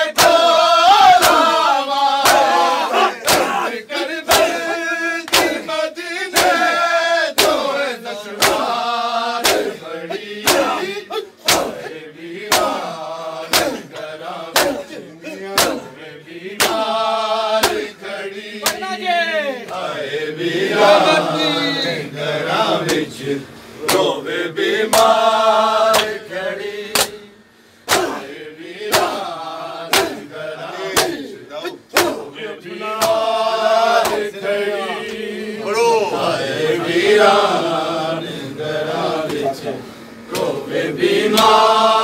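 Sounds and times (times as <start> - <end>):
man chanting a lament: 0.0 - 37.6, 38.5 - 40.7
crowd of men chanting: 0.0 - 42.0
hands slapping chests: 0.2 - 0.5, 1.1 - 1.6, 2.2 - 4.7, 5.3 - 5.7, 6.3 - 6.7, 7.4 - 7.7, 8.4 - 8.8, 9.4 - 9.8, 10.4 - 10.8, 11.4 - 11.9, 12.5 - 12.8, 13.5 - 15.9, 16.6 - 16.9, 17.6 - 17.9, 18.6 - 18.9, 23.8 - 24.1, 24.9 - 25.2, 25.9 - 26.2, 26.9 - 27.2, 27.9 - 28.3, 28.9 - 29.2, 29.9 - 30.2, 30.9 - 31.2, 31.9 - 32.2, 33.0 - 33.2, 33.9 - 34.3.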